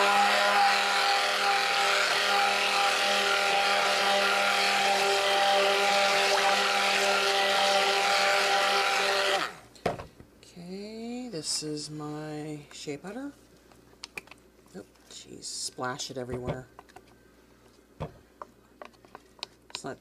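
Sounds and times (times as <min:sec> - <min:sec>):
stick blender motor humming: 0:00.0 - 0:09.6.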